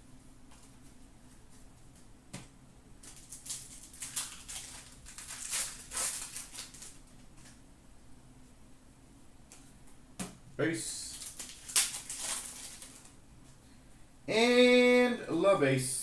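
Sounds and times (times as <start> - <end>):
foil wrapper crinkling: 3.0 - 7.6, 11.1 - 13.2.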